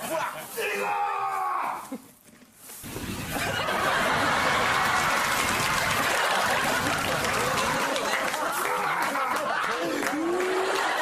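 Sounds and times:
group of people laughing: 0:03.0 - 0:11.0.

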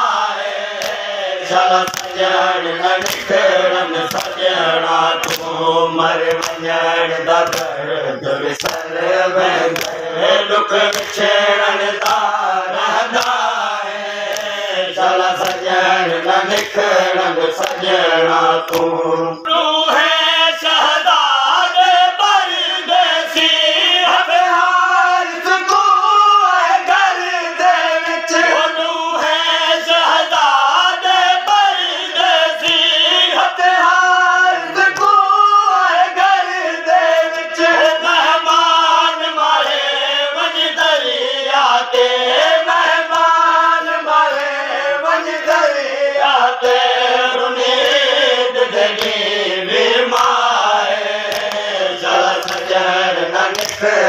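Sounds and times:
men chanting together: 0:00.0 - 0:54.0
chest-beating slaps: 0:00.7 - 0:01.2, 0:01.8 - 0:07.8, 0:08.5 - 0:09.0, 0:09.6 - 0:10.1, 0:10.8 - 0:12.4, 0:13.1 - 0:13.5, 0:14.2 - 0:14.6, 0:15.4 - 0:15.7, 0:16.5 - 0:17.8, 0:18.6 - 0:19.0, 0:48.8 - 0:49.2, 0:50.1 - 0:50.4, 0:51.2 - 0:52.8, 0:53.4 - 0:54.0.

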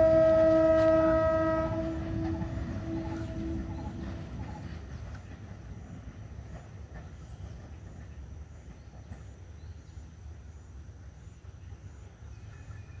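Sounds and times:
steady low rumble: 0:01.4 - 0:07.0.

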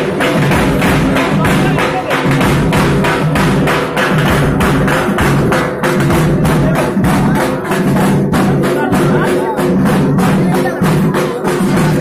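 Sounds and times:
fast rhythmic percussion: 0:00.0 - 0:12.0.

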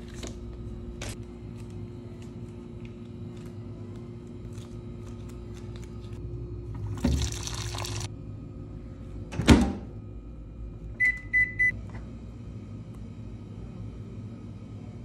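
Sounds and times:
steady low hum: 0:00.0 - 0:15.0
water pouring into paper cup: 0:06.9 - 0:08.1
microwave keypad beeps: 0:11.0 - 0:11.8.

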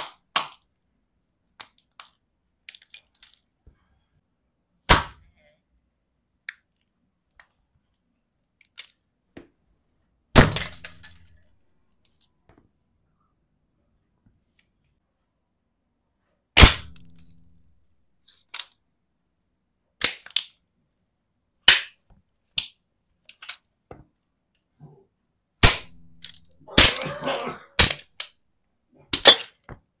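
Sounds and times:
plastic toys cracking under boot: 0:01.5 - 0:03.5, 0:18.4 - 0:18.8, 0:20.0 - 0:20.6, 0:21.6 - 0:23.7, 0:29.1 - 0:30.0.

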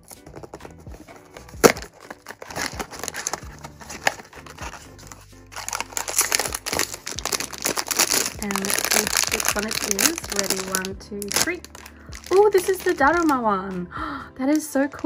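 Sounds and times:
foil bag crinkling: 0:00.0 - 0:13.5
background music: 0:00.0 - 0:15.0
box flap click: 0:01.6 - 0:03.4.

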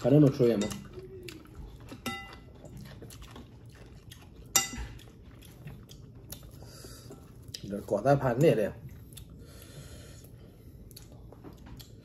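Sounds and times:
metal spoon clinking ceramic bowls: 0:02.0 - 0:02.4.

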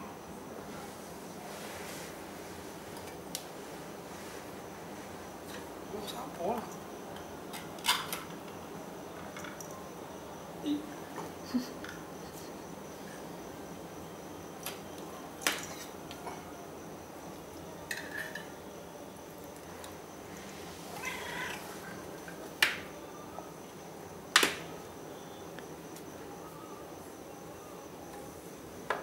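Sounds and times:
kitten meowing: 0:20.9 - 0:21.7.

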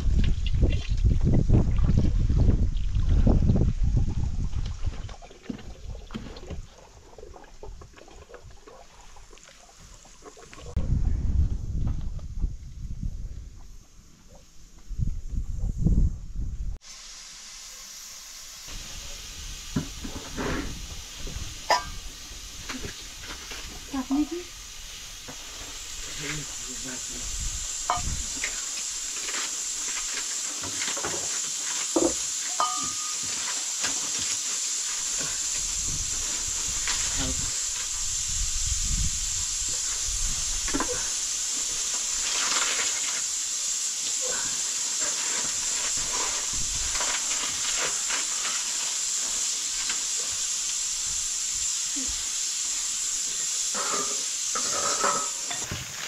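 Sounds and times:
food sizzling: 0:16.8 - 0:56.0.

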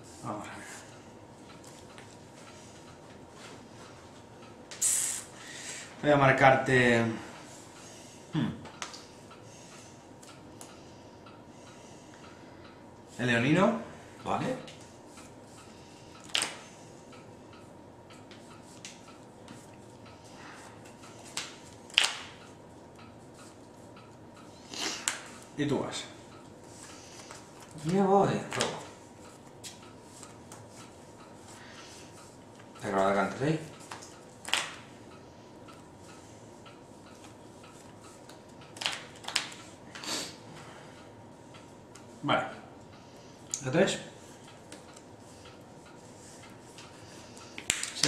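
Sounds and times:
playing cards clicking: 0:21.3 - 0:22.3, 0:33.9 - 0:34.8, 0:38.8 - 0:39.6.

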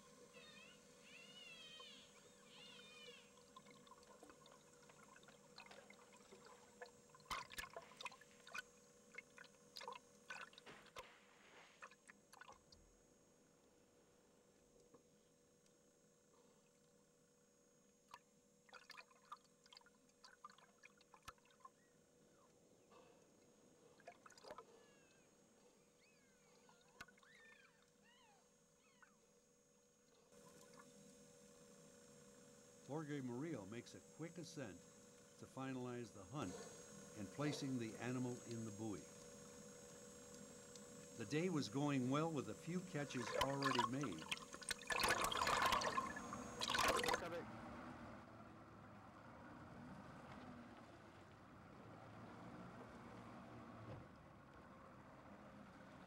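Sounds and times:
faint steady hum: 0:00.0 - 0:56.0
water splashing and bubbling: 0:03.3 - 0:11.1, 0:11.8 - 0:12.8, 0:18.6 - 0:21.8, 0:24.0 - 0:24.7, 0:43.1 - 0:47.3
squeaky gliding whistles: 0:26.0 - 0:27.8.

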